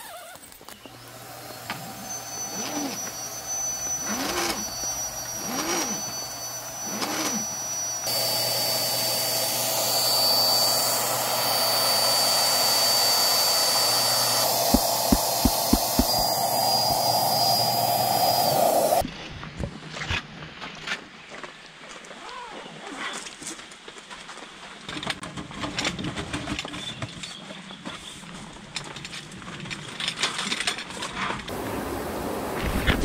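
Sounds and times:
electric air pump whining: 0.0 - 19.0
rushing air: 8.1 - 19.0.

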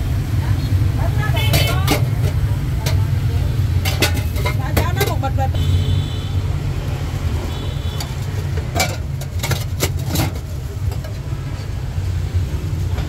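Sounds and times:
street traffic rumble: 0.0 - 13.0
metal spoon clinking on containers: 1.4 - 3.2, 3.8 - 5.4, 8.0 - 11.2.

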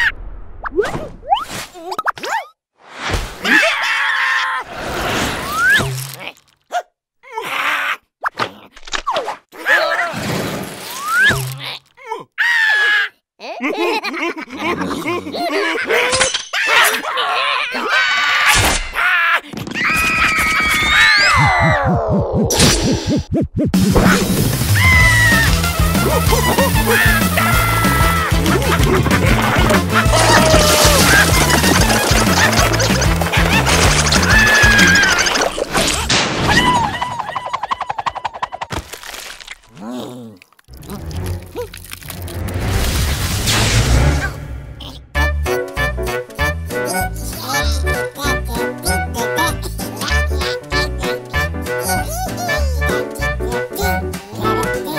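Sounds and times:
warbling vocal sound: 21.2 - 24.4
loud crash: 42.6 - 44.7.

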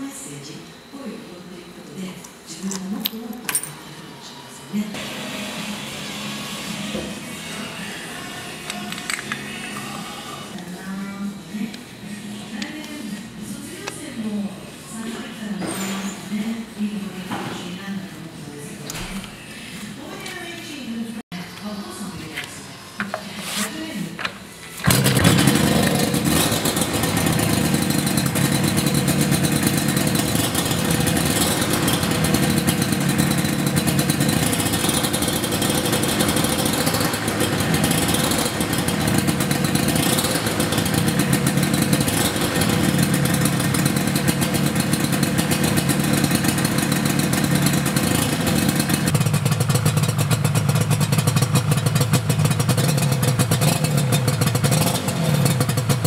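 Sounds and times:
two-stroke engine revving: 24.8 - 56.0.

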